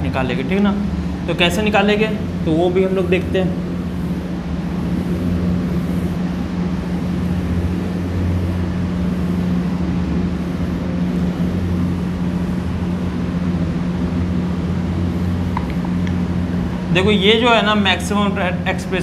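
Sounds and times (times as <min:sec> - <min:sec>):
low electrical hum: 0:00.0 - 0:19.0
steady hiss: 0:00.0 - 0:19.0.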